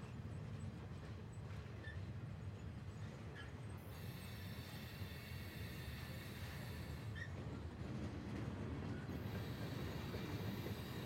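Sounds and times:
freight train wheels rumbling: 0.0s - 11.0s.

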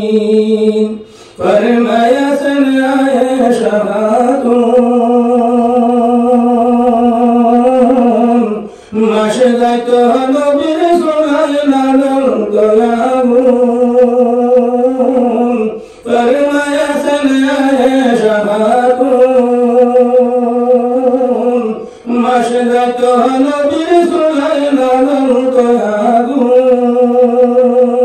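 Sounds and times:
man singing unaccompanied: 0.0s - 28.0s.

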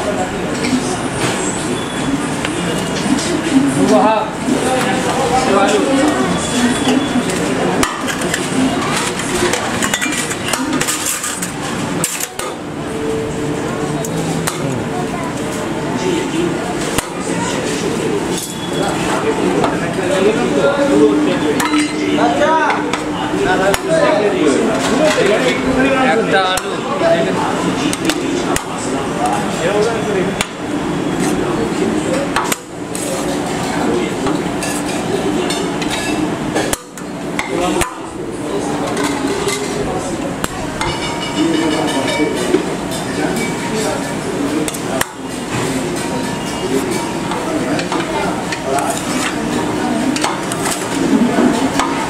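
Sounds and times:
utensils clinking on steel pot: 7.8s - 12.5s.

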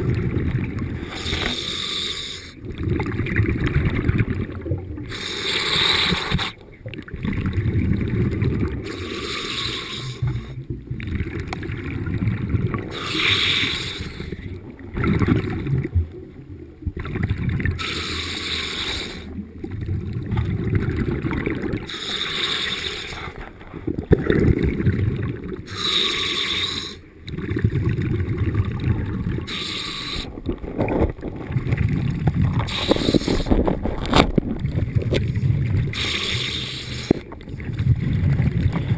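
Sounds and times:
bubbling exhaled air: 0.0s - 38.9s
regulator hissing inhalation: 1.0s - 2.6s, 5.1s - 6.6s, 8.9s - 10.5s, 12.9s - 14.4s, 17.8s - 19.3s, 21.9s - 23.4s, 25.7s - 27.0s, 29.5s - 30.4s, 32.7s - 33.6s, 36.0s - 37.2s.

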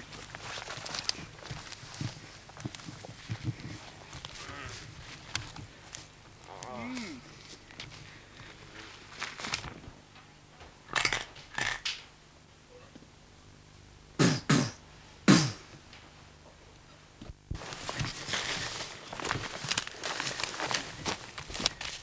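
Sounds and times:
rustling through brush: 0.0s - 9.8s, 17.5s - 22.0s.

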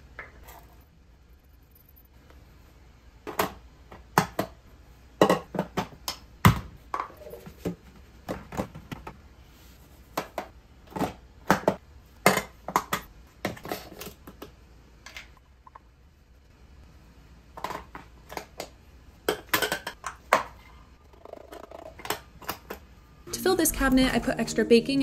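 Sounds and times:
plastic canisters clicking and tapping: 5.2s - 9.2s.

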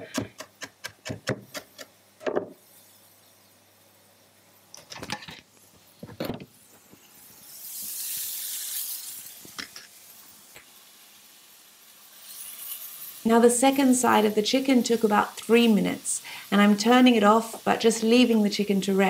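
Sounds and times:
knife chopping on wooden board: 0.0s - 2.5s
chicken sizzling in pan: 2.6s - 4.3s, 5.5s - 19.0s.

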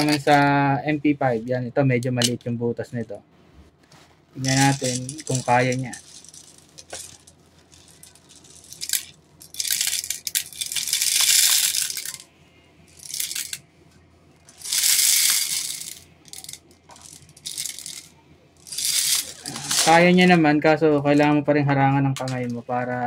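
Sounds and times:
plastic pellets pouring rattle: 4.4s - 12.2s, 13.0s - 13.6s, 14.5s - 20.0s.

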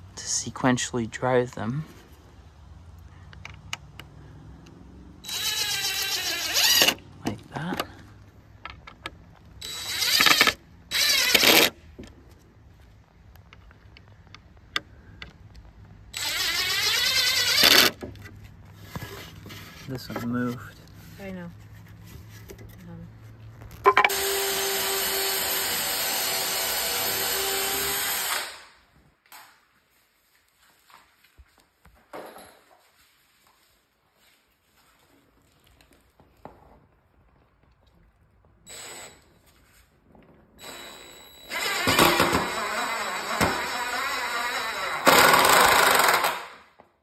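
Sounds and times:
cordless drill motor whine: 5.2s - 7.0s, 9.6s - 11.7s, 16.1s - 17.9s, 24.0s - 28.5s, 38.7s - 39.2s, 40.6s - 46.2s
drill clicks: 5.2s - 7.0s, 8.6s - 11.8s, 13.4s - 18.0s, 40.6s - 46.6s
impact driver hammering: 41.6s - 44.0s, 44.8s - 46.6s.

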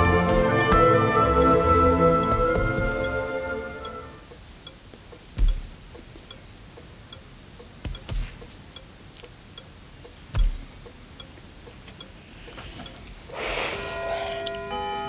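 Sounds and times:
dull low thumps: 0.0s - 3.3s, 5.2s - 6.4s, 7.7s - 8.5s, 10.2s - 11.0s
clock ticking: 0.0s - 15.0s.

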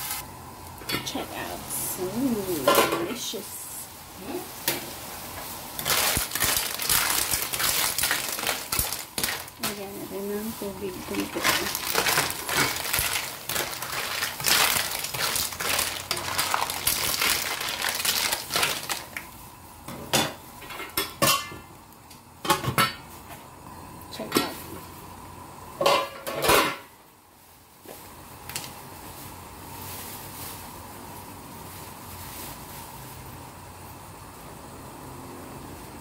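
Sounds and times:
clam shells clattering in a wok: 5.8s - 9.8s, 11.1s - 19.2s
water pouring: 11.1s - 19.1s.

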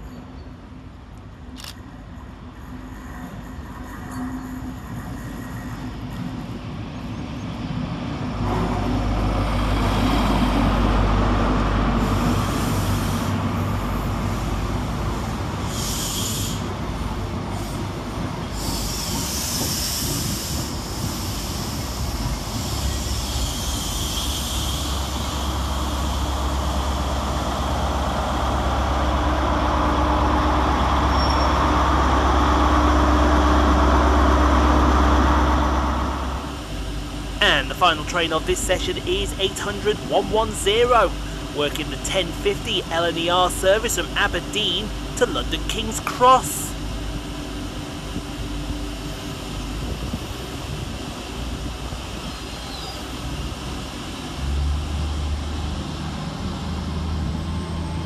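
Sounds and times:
diesel train engine rumbling: 0.0s - 58.0s
train coaches squealing: 18.5s - 26.3s, 31.0s - 31.9s, 52.3s - 53.2s.

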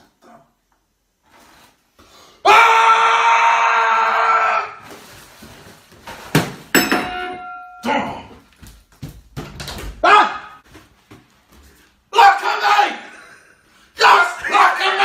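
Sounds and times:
man screaming: 2.4s - 4.8s, 10.0s - 10.6s, 12.1s - 13.2s, 14.0s - 15.0s
sharp metallic clang: 6.7s - 7.9s
short shouts: 10.0s - 10.6s.

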